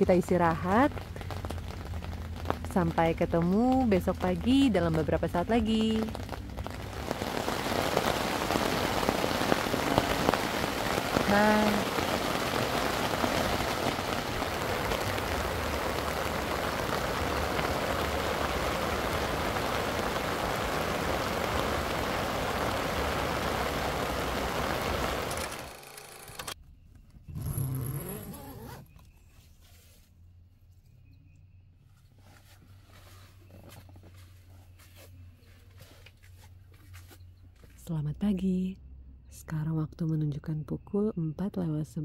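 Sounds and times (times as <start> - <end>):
heavy rain on a tent: 0.0 - 26.6.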